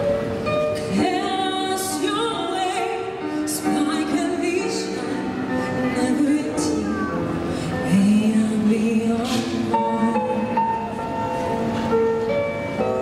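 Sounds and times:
instrumental backing music: 0:00.0 - 0:13.0
woman singing with vibrato: 0:00.9 - 0:07.1, 0:07.8 - 0:10.9.

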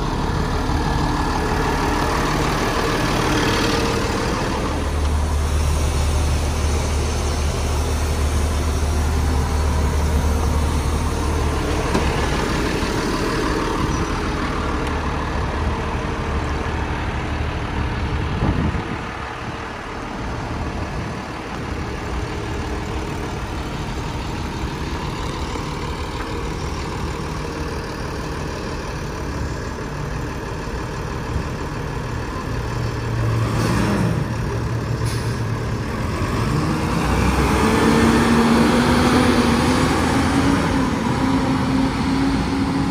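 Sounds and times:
garbage truck engine idling: 0:00.0 - 0:33.3.

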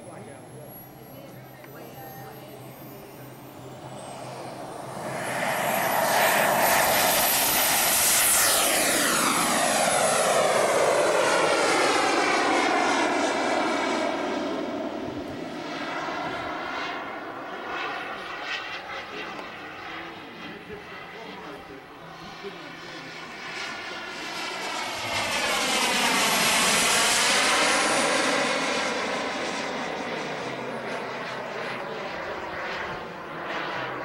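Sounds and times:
model jet engine whine: 0:00.0 - 0:34.0.

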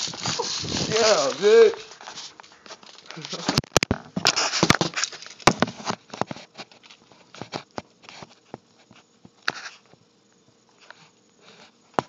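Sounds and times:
handling rustling: 0:00.0 - 0:08.3.

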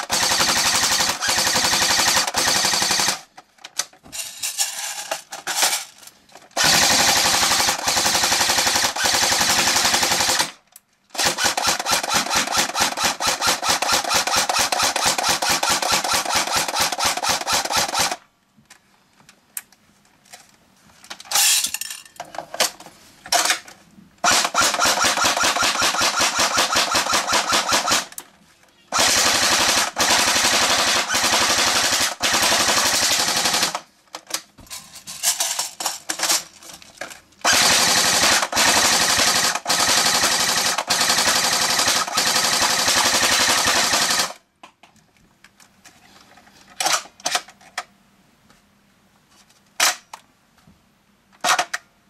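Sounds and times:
airsoft gun firing bursts: 0:00.0 - 0:03.3, 0:06.6 - 0:18.2, 0:24.2 - 0:28.1, 0:28.9 - 0:33.9, 0:37.4 - 0:44.4.

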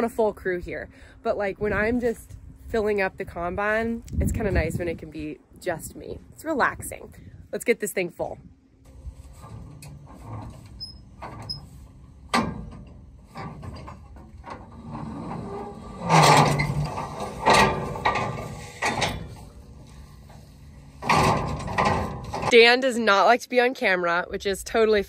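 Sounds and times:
low metal creak: 0:08.9 - 0:22.6
metal ladder clicking and clanking: 0:09.3 - 0:22.7.

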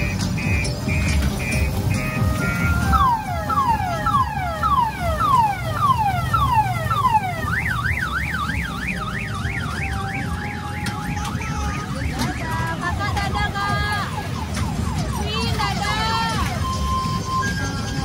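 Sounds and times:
electronic siren from loudspeaker: 0:00.0 - 0:18.0.

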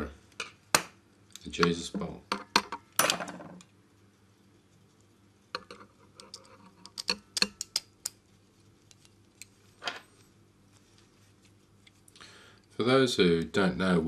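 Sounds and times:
small parts clicking and tapping: 0:05.6 - 0:08.2.

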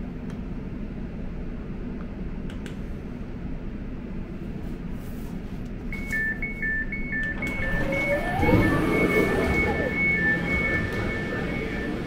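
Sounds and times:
train carriage low hum: 0:00.0 - 0:12.0
door warning beeping: 0:05.9 - 0:12.0.

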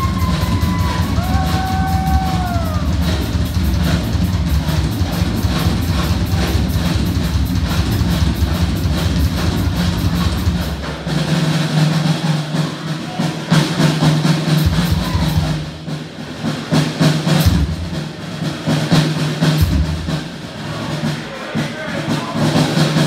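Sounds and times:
deep bass drum thumps: 0:00.0 - 0:11.0
drum kit playing: 0:00.0 - 0:23.0.

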